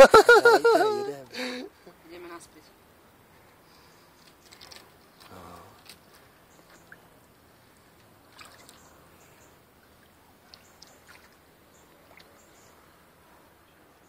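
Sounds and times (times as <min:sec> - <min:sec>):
water sloshing and trickling: 0:03.5 - 0:13.6
small water splashes: 0:04.2 - 0:13.1.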